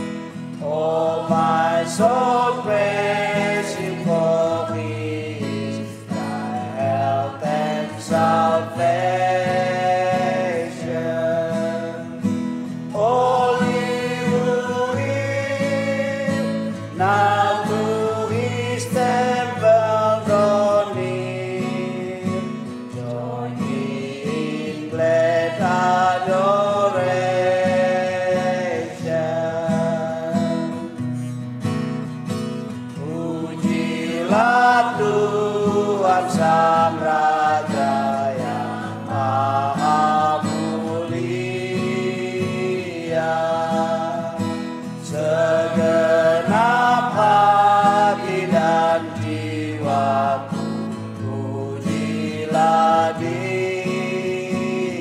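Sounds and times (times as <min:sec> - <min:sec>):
group singing worship song: 0:00.0 - 0:31.4, 0:32.2 - 0:55.0
acoustic guitar: 0:00.0 - 0:55.0.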